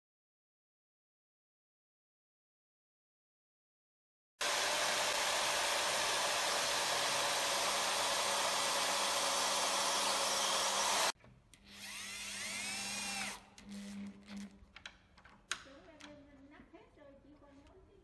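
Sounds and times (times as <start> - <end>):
power tool running: 4.4 - 14.1
electric drill whining: 4.4 - 14.5.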